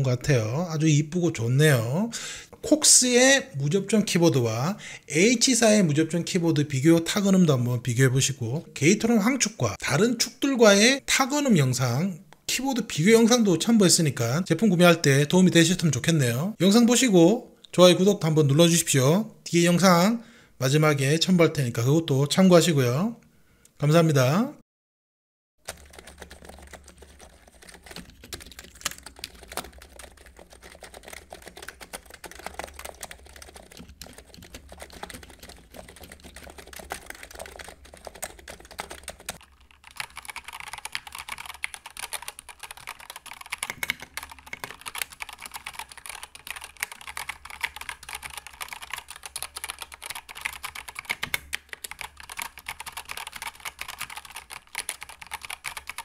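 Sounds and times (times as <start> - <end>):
mechanical keyboard typing: 25.6 - 56.0
muted keyboard typing: 25.6 - 56.0.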